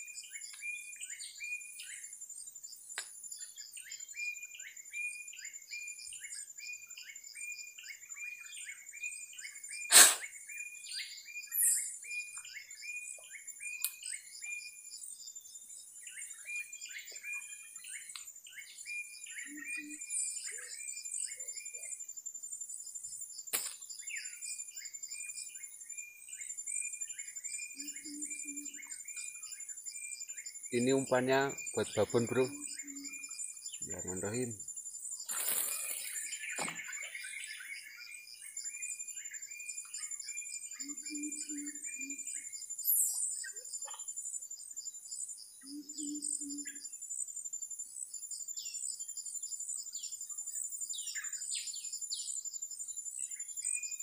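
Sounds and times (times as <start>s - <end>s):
birds chirping: 0.0s - 54.0s
sharp knock: 9.9s - 10.2s.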